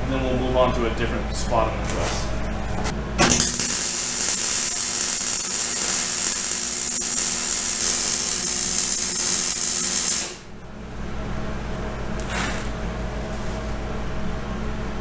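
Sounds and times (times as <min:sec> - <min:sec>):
welder arc crackling: 0:03.2 - 0:10.6, 0:12.0 - 0:12.8.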